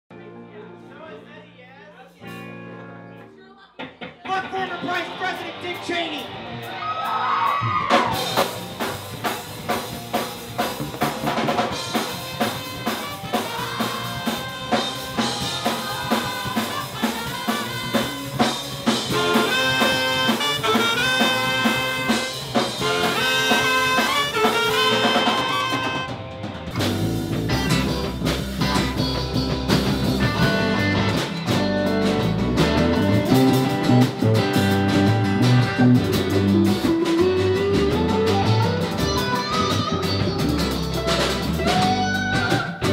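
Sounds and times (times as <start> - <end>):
electric guitar: 2.2 - 42.9
drum kit: 3.8 - 42.9
electric bass: 3.9 - 42.9
horn section with trumpet: 11.8 - 26.4.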